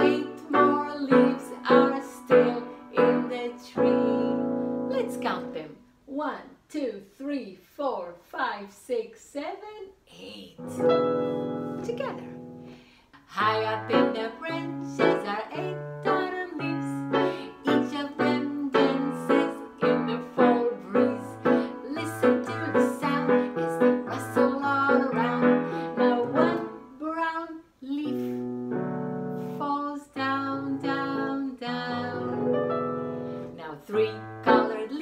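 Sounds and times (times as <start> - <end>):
woman singing: 0.0 - 5.8, 13.2 - 28.6, 29.3 - 32.8, 33.4 - 35.0.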